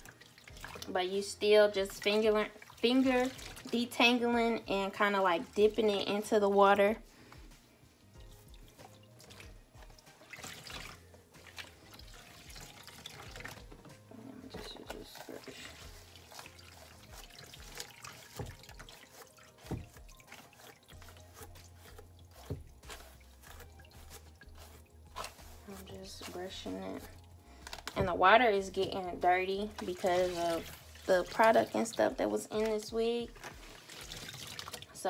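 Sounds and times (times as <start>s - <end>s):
water splashing and dripping: 0.0s - 7.0s, 8.1s - 35.0s
hairbrush brushing wet hair: 14.5s - 27.3s.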